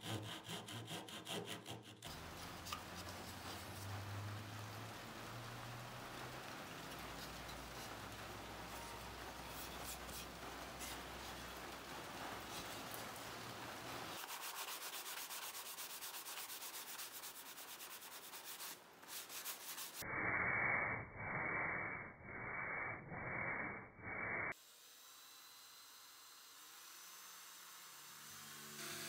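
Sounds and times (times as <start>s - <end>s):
sandpaper rasping on wood: 0.0s - 3.9s, 9.4s - 13.2s, 14.2s - 20.0s.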